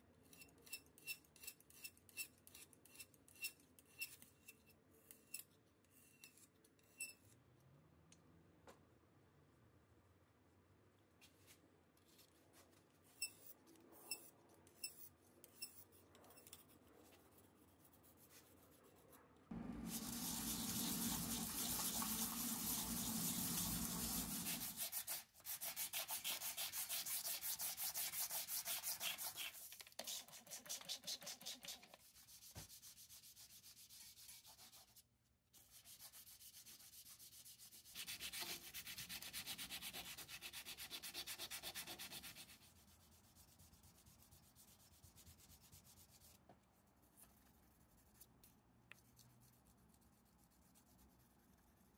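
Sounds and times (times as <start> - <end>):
sanding scratching: 19.8 - 35.0, 35.6 - 46.4.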